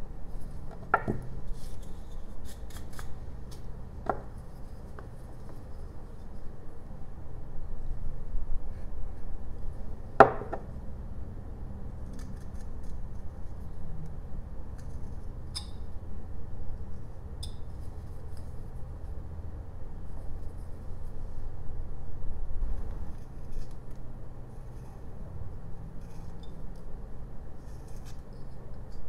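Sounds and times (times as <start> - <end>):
low steady hum: 0.0 - 29.0.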